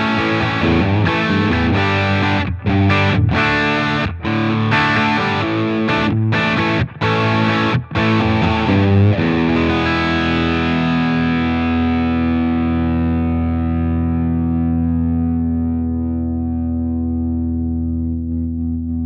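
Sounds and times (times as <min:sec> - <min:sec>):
electric guitar chord ringing: 0:00.0 - 0:18.8.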